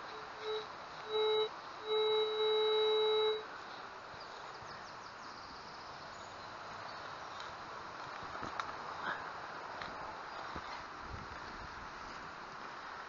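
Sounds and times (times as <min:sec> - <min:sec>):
faint high chirps: 0:00.0 - 0:03.4
metal detector tone: 0:00.0 - 0:03.5.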